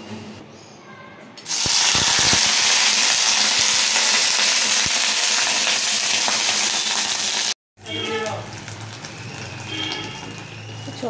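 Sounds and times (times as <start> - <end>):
vegetables sizzling in hot oil: 1.5 - 7.6, 8.3 - 11.0.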